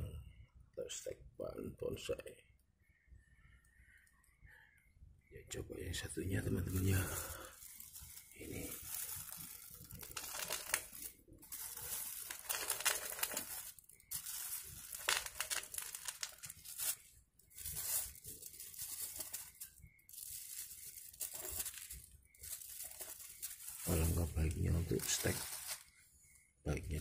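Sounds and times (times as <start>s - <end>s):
plastic bag crinkling: 6.4s - 26.0s.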